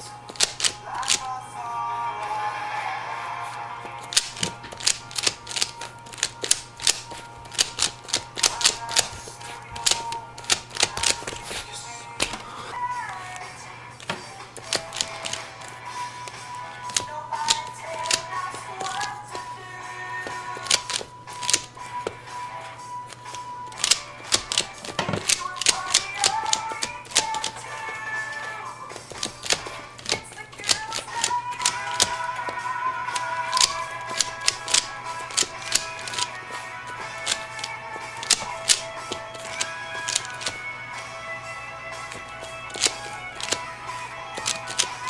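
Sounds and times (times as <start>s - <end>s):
faint background music: 0.0s - 45.0s
puzzle cube plastic clicks: 0.3s - 1.3s, 4.0s - 12.6s, 14.0s - 19.6s, 20.2s - 22.1s, 23.1s - 40.7s, 42.0s - 45.0s.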